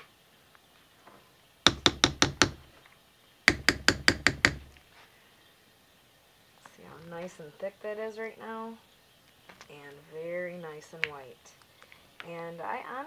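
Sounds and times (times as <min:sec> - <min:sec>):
spatula knocking on pot rim: 0:01.7 - 0:02.6, 0:03.5 - 0:04.7.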